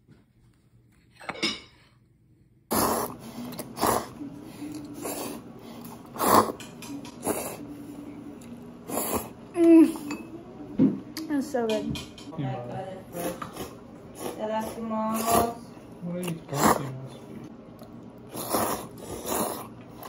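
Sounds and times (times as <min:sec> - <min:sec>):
person slurping noodles: 0:02.7 - 0:04.2, 0:04.8 - 0:07.7, 0:08.9 - 0:10.0, 0:16.4 - 0:16.9, 0:18.3 - 0:20.0.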